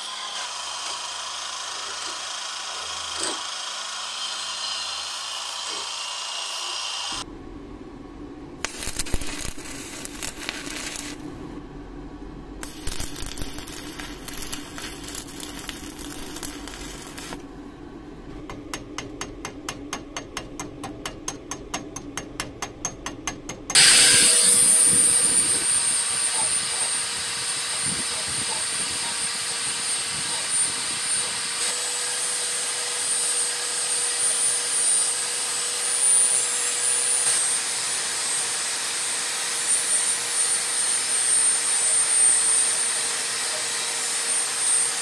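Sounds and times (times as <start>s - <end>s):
angle grinder grinding steel: 0.0s - 7.2s, 8.6s - 11.2s, 12.6s - 17.4s, 23.7s - 45.0s
crackling hiss: 8.6s - 11.3s, 12.6s - 17.4s.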